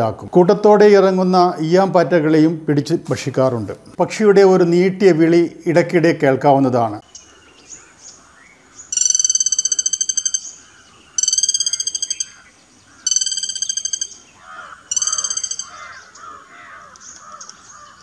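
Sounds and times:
woodpecker trilled calls: 7.0 - 18.0.

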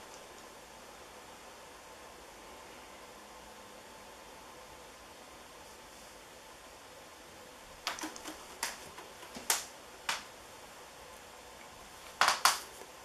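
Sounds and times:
ceiling fan running with hiss: 0.0 - 13.0
sharp clicks: 7.8 - 10.3.

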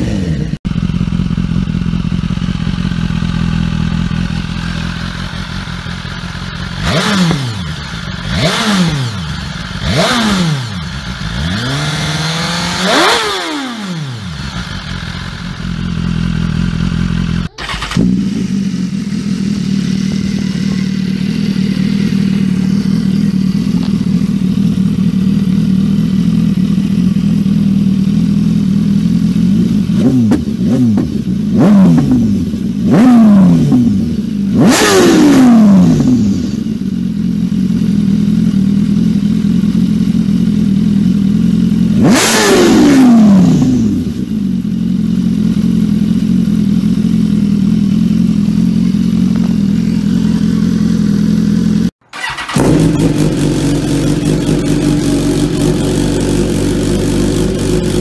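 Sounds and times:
motorcycle engine idling and revving: 0.0 - 58.0.

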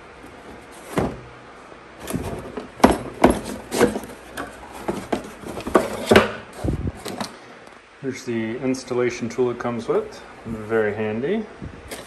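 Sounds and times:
cardboard knocks and scrapes: 0.4 - 1.3, 2.0 - 6.7
plastic-wrapped parts rustling: 2.0 - 6.2.

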